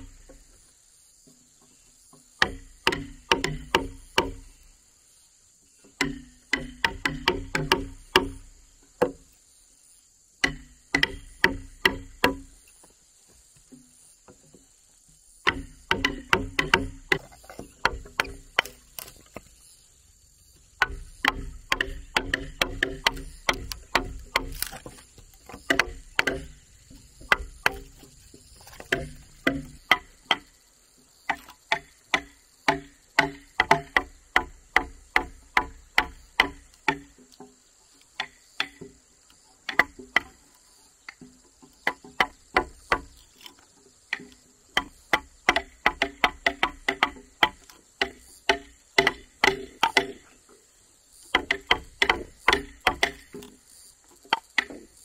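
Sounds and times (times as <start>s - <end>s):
hammer striking chisel into wood: 2.4s - 4.4s, 6.0s - 8.4s, 15.5s - 19.1s, 20.8s - 26.6s, 31.3s - 37.1s, 44.2s - 50.2s, 51.4s - 53.5s.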